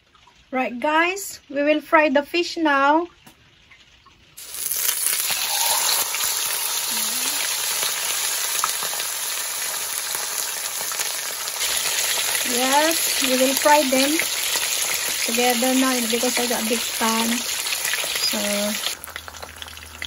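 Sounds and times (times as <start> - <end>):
fish sizzling in hot oil: 4.4 - 20.0.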